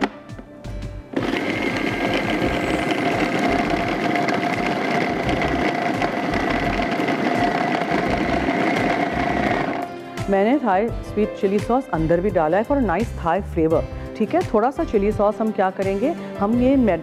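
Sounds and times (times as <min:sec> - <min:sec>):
food processor whining: 0:01.1 - 0:10.1.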